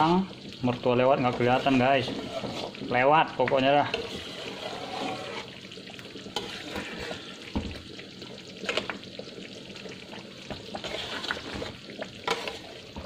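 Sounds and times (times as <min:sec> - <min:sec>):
meat sizzling and bubbling in wok: 0:00.0 - 0:13.0
wooden spatula scraping pan: 0:01.2 - 0:05.7, 0:06.3 - 0:07.6, 0:10.6 - 0:13.0.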